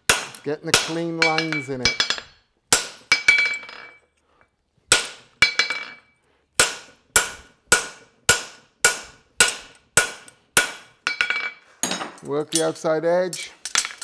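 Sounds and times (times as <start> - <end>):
hammer striking metal on anvil: 0.1 - 3.9, 6.6 - 12.1.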